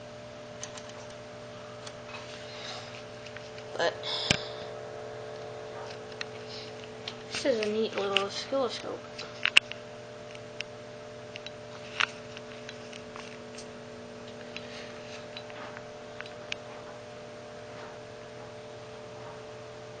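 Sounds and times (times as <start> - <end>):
oscilloscope fan and hum drone: 0.0 - 20.0.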